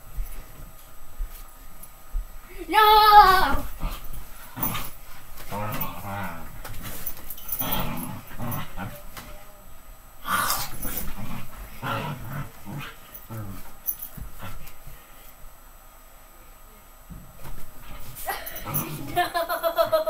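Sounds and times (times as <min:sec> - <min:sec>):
dog growling in play: 0:03.6 - 0:09.1, 0:10.2 - 0:14.7, 0:17.8 - 0:19.4.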